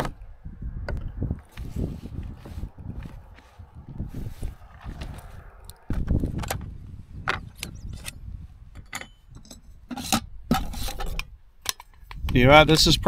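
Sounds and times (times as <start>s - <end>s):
wind rumble on microphone: 0.0s - 13.0s
camping cook kit clicks and scrapes: 8.8s - 12.4s.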